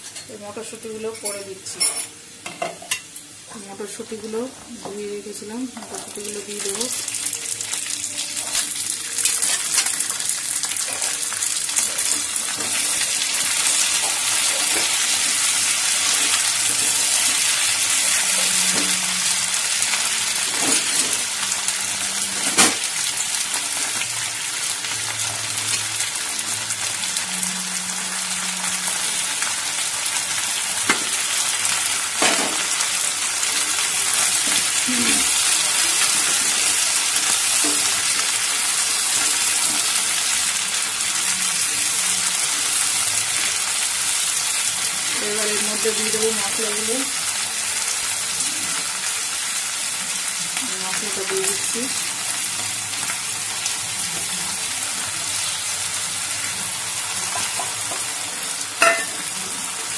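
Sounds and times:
vegetables sizzling in oil: 0.0 - 59.9.

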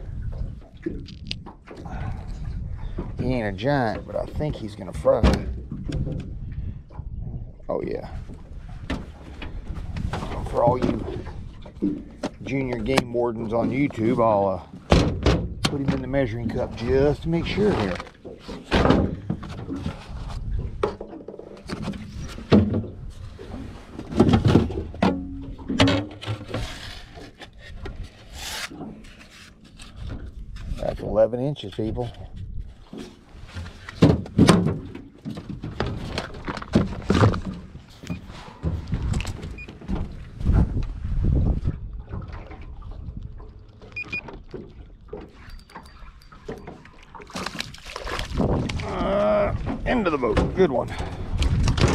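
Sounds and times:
knocks and bumps in metal boat: 3.0 - 6.3, 8.8 - 26.8, 33.0 - 40.8, 49.5 - 51.9.

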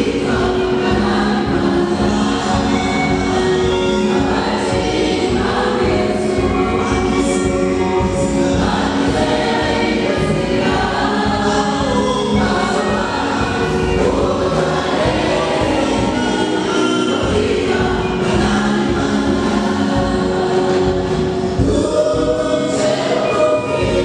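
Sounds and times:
steady beat: 0.0 - 23.1
choir singing gospel: 0.0 - 24.0.

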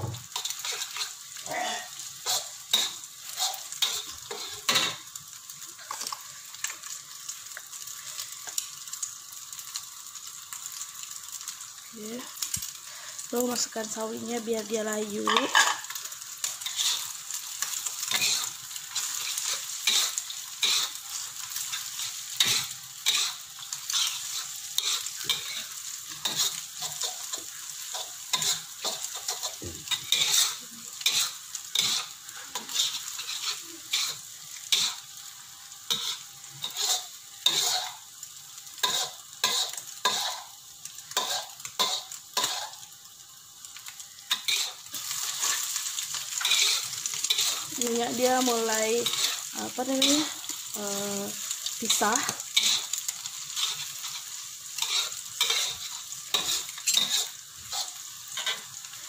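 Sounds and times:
spatula scraping a wok: 0.0 - 5.0, 15.2 - 35.1, 35.8 - 38.2, 38.8 - 42.9, 44.3 - 59.0
food sizzling in hot oil: 0.0 - 59.0.

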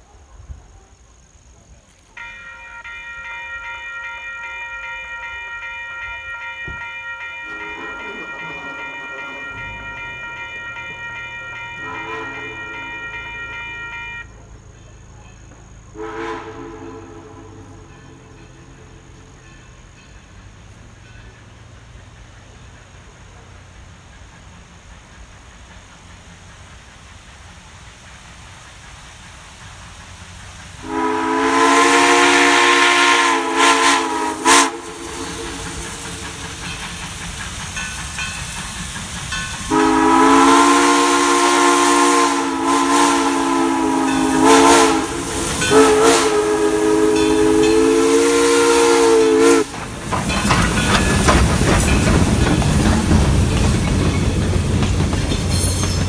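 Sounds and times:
steam locomotive rumbling on rails: 0.0 - 56.0
steam whistle blasts: 2.2 - 14.4, 15.9 - 18.6, 30.8 - 36.4, 39.7 - 49.7.

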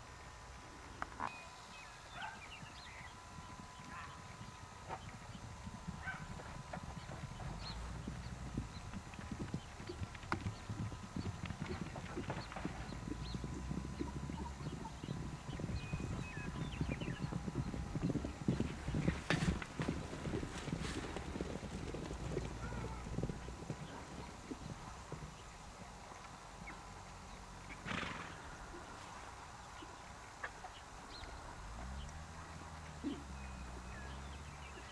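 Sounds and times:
horses galloping on dirt: 1.0 - 34.9
horse calling: 11.6 - 21.2.

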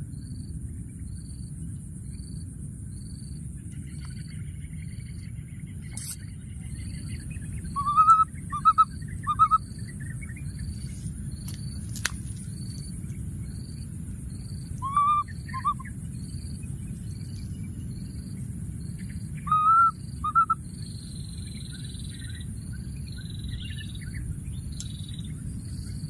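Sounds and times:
low steady rumble: 0.0 - 26.0
soft repeating chirp: 5.8 - 10.7, 14.8 - 15.9
high rising and falling calls: 7.7 - 9.6, 14.8 - 15.8.

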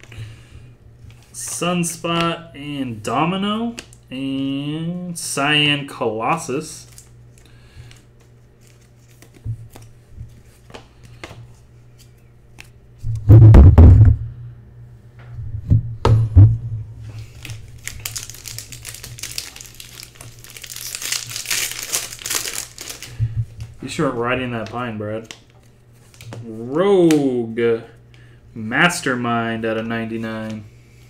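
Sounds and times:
cards clicking and tapping: 8.6 - 9.9
heavy thumps: 13.1 - 14.3, 15.2 - 17.1
foil wrapper crinkling: 17.2 - 23.2.

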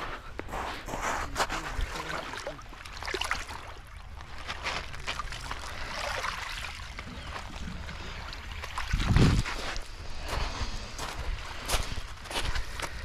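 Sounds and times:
footsteps crunching on pebbles: 0.0 - 2.3, 4.1 - 5.8, 8.8 - 13.0
small waves washing over pebbles: 0.9 - 10.2.

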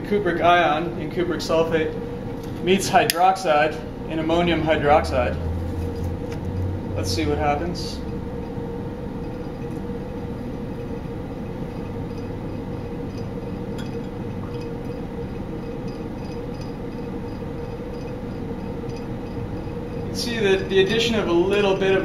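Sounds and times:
motor humming: 1.5 - 22.0
glass clinks: 13.2 - 14.7.

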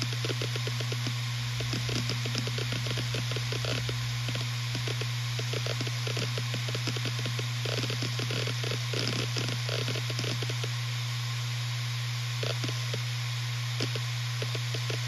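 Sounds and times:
hard drive humming: 0.0 - 15.0
hard drive heads clicking: 0.1 - 10.7.

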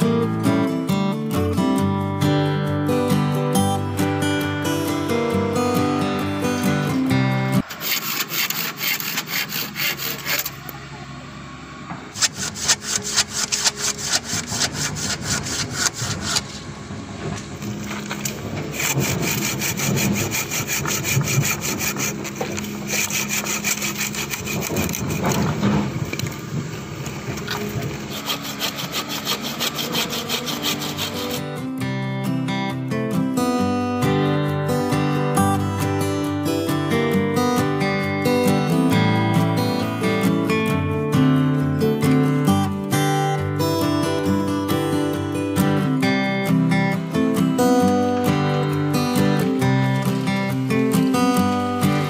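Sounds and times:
acoustic guitar music: 0.0 - 10.7, 12.1 - 52.0
hand saw cutting wood: 7.6 - 10.8, 12.1 - 16.7, 17.4 - 26.3, 27.4 - 31.7, 44.2 - 52.0.

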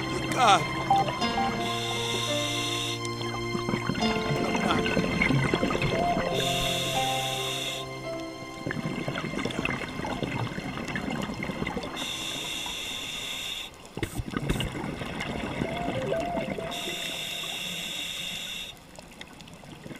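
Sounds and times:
steady hiss: 0.0 - 3.3, 6.1 - 8.2, 12.0 - 14.2, 16.6 - 18.8
underwater bubbling: 0.0 - 19.9.

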